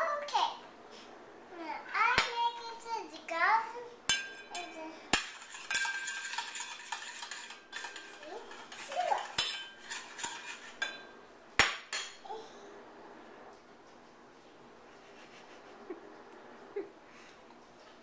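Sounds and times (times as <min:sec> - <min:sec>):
metal spoon scraping in a bowl: 0:04.2 - 0:11.2.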